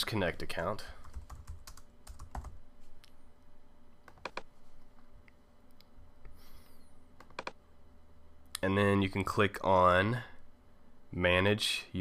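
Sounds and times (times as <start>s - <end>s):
computer mouse and keyboard clicks: 4.1s - 4.5s, 7.2s - 7.6s.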